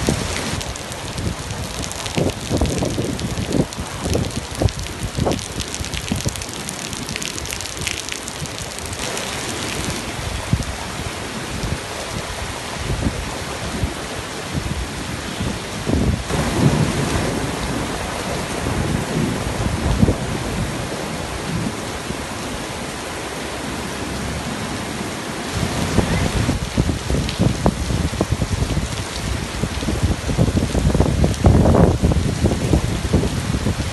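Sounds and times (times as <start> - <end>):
gusting wind rumbles: 0.0 - 33.9
heavy rain on wet pavement: 0.0 - 33.9.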